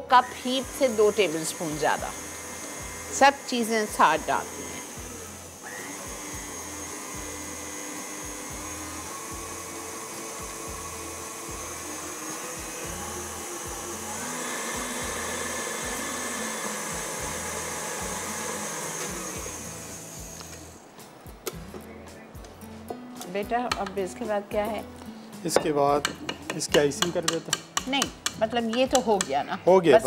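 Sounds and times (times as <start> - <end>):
stand mixer running: 0.4 - 20.4.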